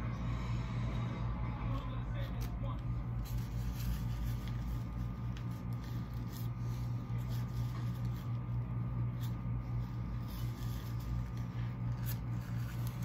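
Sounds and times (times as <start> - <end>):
steady low hum: 0.0 - 13.0
plastic bag rustling: 3.0 - 13.0.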